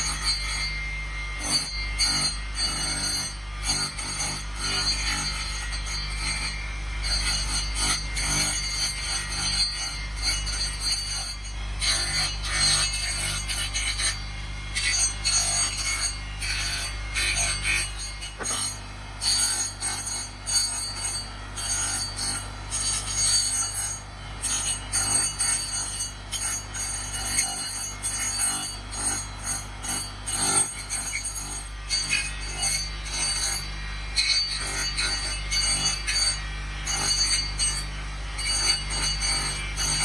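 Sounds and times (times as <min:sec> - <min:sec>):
electric motor hum: 0:00.0 - 0:21.7, 0:31.7 - 0:40.0
wood grinding against disc: 0:17.0 - 0:18.8.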